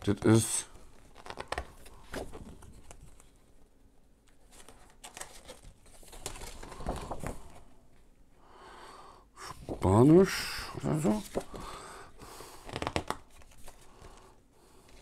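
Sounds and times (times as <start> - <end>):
paper sheet rustling and crinkling: 0.0 - 3.7, 4.3 - 7.7, 9.5 - 14.3.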